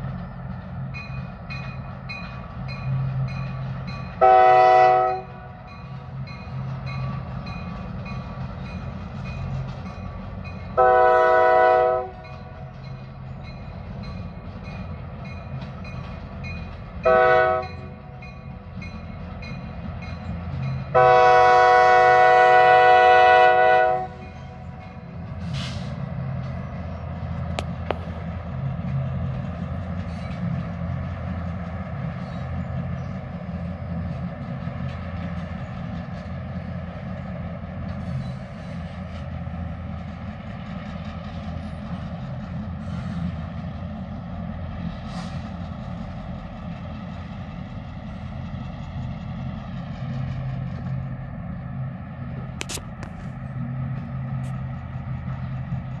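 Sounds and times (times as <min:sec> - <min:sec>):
diesel engines running: 0:00.0 - 0:56.0
locomotive air horn blast: 0:04.2 - 0:05.7, 0:10.8 - 0:12.3, 0:17.0 - 0:18.0, 0:20.9 - 0:24.7, 0:25.4 - 0:26.0.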